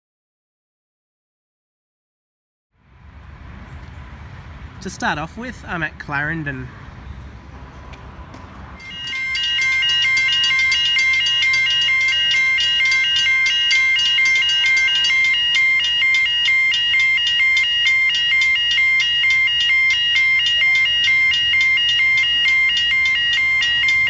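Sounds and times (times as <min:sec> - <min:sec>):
level crossing warning bell: 0:08.8 - 0:24.0.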